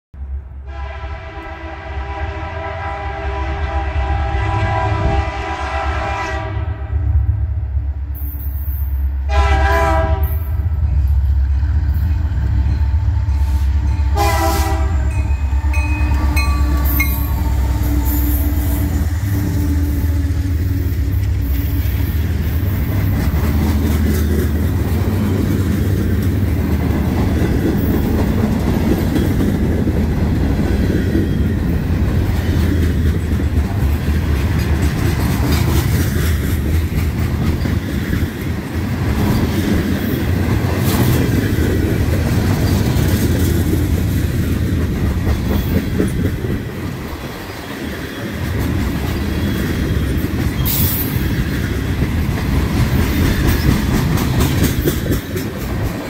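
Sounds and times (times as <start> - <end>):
low locomotive engine rumble: 0.2 - 56.0
train air horn blasts: 0.6 - 7.2, 9.3 - 10.6, 13.2 - 22.8
train wheels clattering on rails: 10.1 - 56.0.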